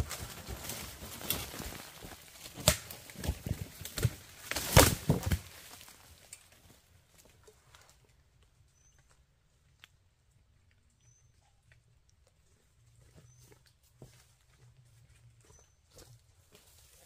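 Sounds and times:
dry leaves and twigs crunching: 0.0s - 8.1s, 13.1s - 17.0s.

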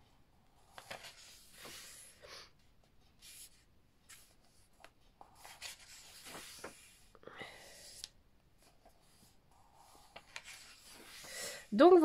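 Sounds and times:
book pages turning: 0.6s - 2.1s, 2.9s - 7.1s, 7.8s - 11.6s.

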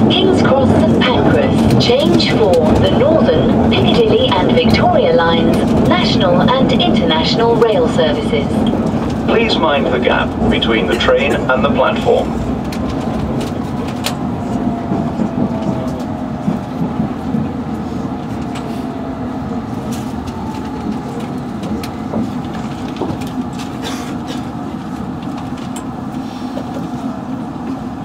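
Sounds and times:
faint train whine: 0.0s - 28.0s
wheels rumbling on rail: 0.0s - 28.0s
sharp clicks of train wheels: 12.3s - 19.0s, 19.8s - 27.0s.

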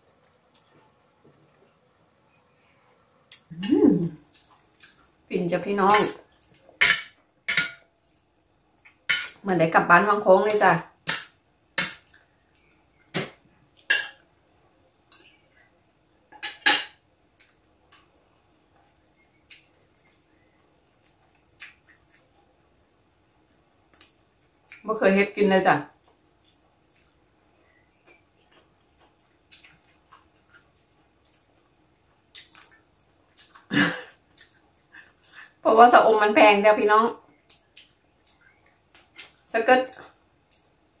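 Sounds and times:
person chewing food: 3.3s - 5.2s, 19.2s - 22.4s, 26.0s - 35.6s, 37.3s - 39.5s
cutlery clinking on metal tray: 6.8s - 7.9s.

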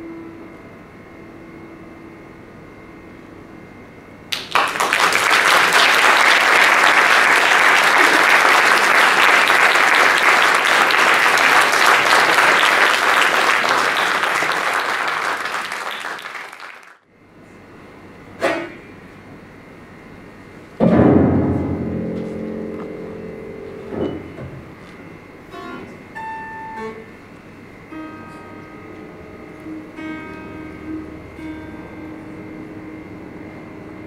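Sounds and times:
audience applause: 4.3s - 17.0s
grand piano note: 20.8s - 27.1s, 27.8s - 34.0s.

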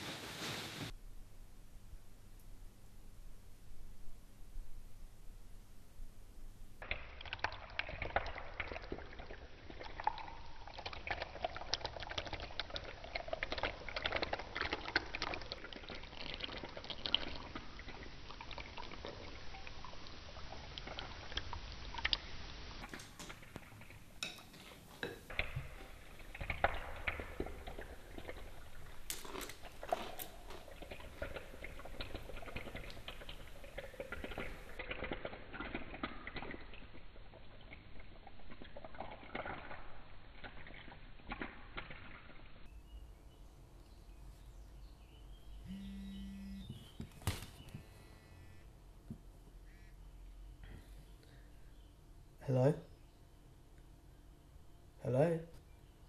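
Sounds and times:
milk pouring onto cereal: 6.8s - 42.5s.

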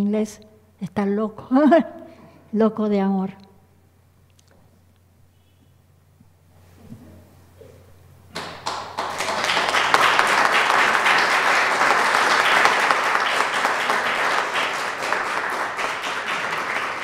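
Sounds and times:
audience applauding: 8.4s - 17.0s.

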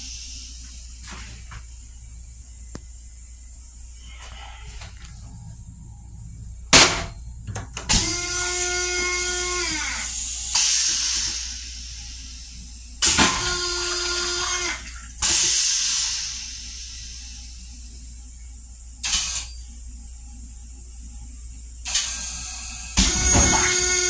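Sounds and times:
toilet flushing: 4.0s - 18.4s, 21.8s - 24.0s.

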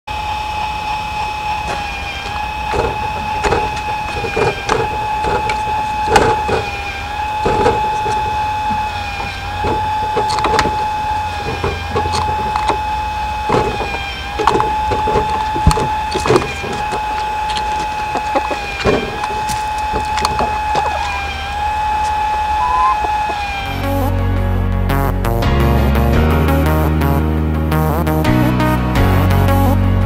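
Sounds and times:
short knocks and clicks: 1.7s - 23.6s.

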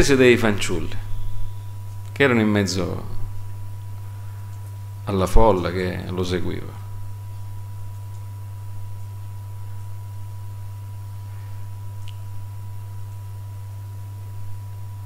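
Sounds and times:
low electrical hum: 0.0s - 15.0s
faint thin whistle: 0.9s - 1.7s.

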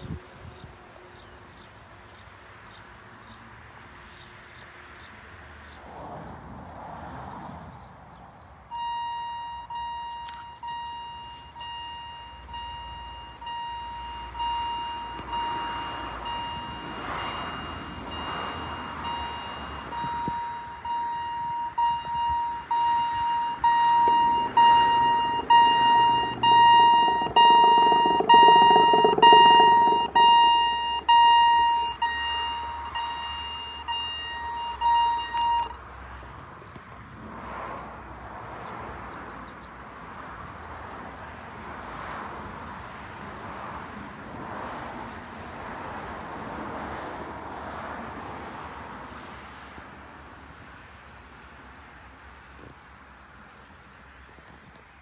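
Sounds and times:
level crossing bell ringing: 23.0s - 35.8s
rushing noise: 23.9s - 31.2s.

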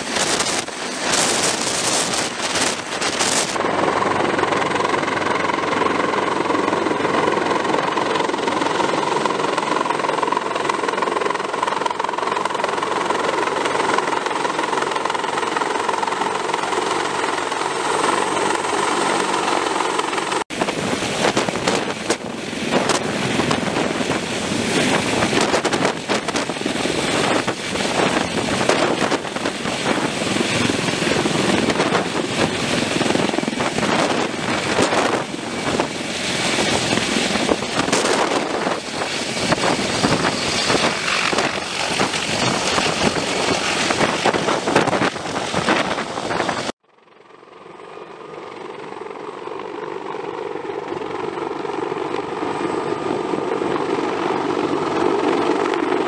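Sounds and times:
helicopter rotor and turbine noise: 0.0s - 56.0s.

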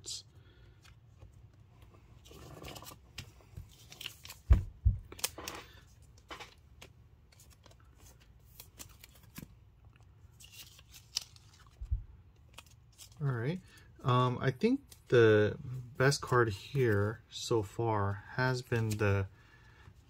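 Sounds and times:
cards rustling and sliding: 0.5s - 13.9s, 18.6s - 19.3s.

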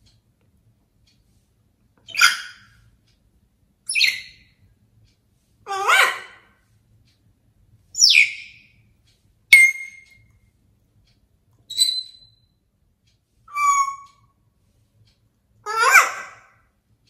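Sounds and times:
parrot whistles and calls: 2.1s - 2.8s, 3.9s - 4.5s, 5.7s - 6.4s, 8.0s - 8.7s, 9.5s - 10.2s, 11.7s - 12.4s, 13.5s - 14.2s, 15.6s - 16.5s.

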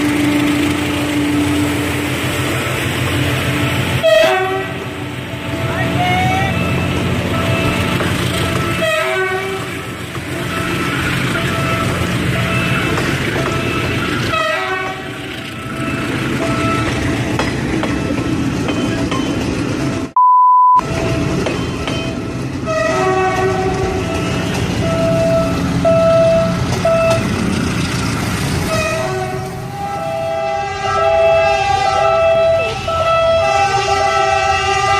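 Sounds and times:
train horns: 0.0s - 17.0s, 22.0s - 27.3s, 28.6s - 34.9s
train rumbling on rails: 0.0s - 20.2s, 20.8s - 34.9s
short electronic beep: 20.2s - 20.8s.

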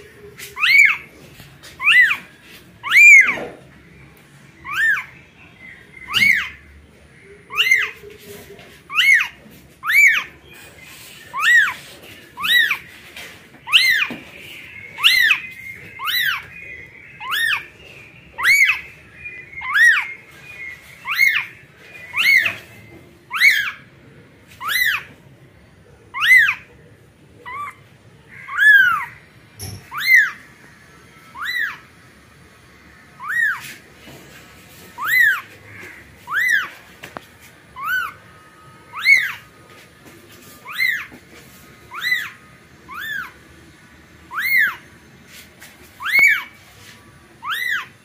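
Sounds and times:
kitten meowing: 38.9s - 39.4s, 44.3s - 44.8s, 46.0s - 46.5s, 47.4s - 47.9s.

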